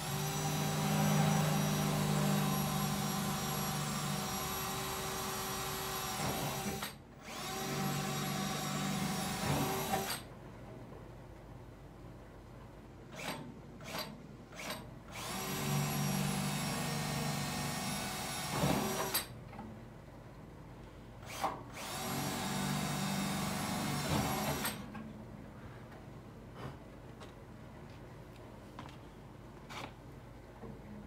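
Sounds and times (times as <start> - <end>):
drill into steel: 0.0 - 10.3, 13.1 - 19.3, 21.2 - 24.8
cordless drill whine: 21.3 - 24.8.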